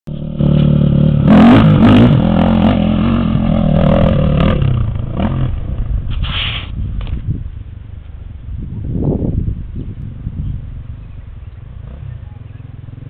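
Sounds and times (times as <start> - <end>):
dirt bike engine revving: 0.1 - 5.8.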